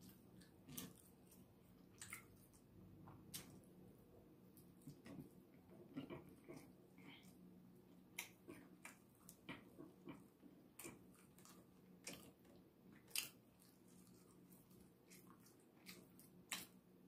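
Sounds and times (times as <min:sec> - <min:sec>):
person chewing: 0:08.1 - 0:16.8.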